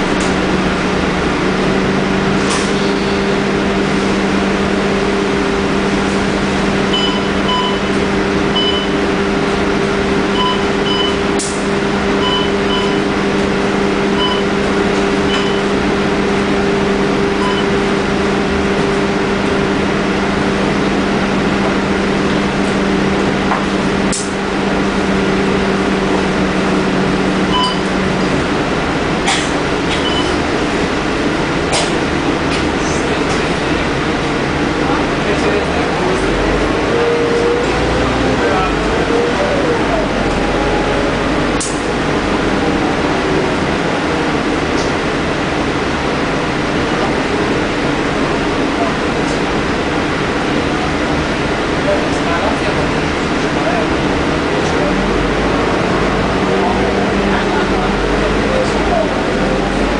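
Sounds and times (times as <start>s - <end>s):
bus engine idling hum: 0.0s - 59.9s
electronic card reader beeps: 6.9s - 7.9s, 8.6s - 9.0s, 10.3s - 11.2s, 12.2s - 13.0s, 14.2s - 14.5s, 15.3s - 15.7s, 17.4s - 17.8s, 27.5s - 27.9s.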